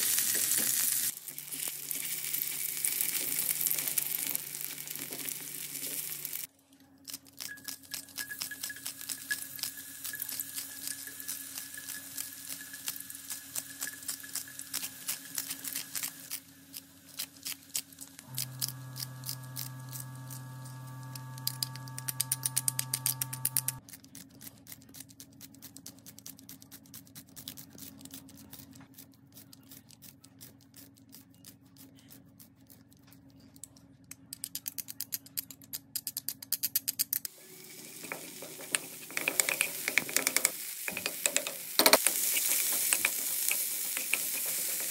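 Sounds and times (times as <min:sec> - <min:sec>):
oil sizzling in a pan: 0:00.0 - 0:06.5, 0:08.2 - 0:16.4, 0:37.3 - 0:44.9
low steady hum: 0:18.1 - 0:23.9.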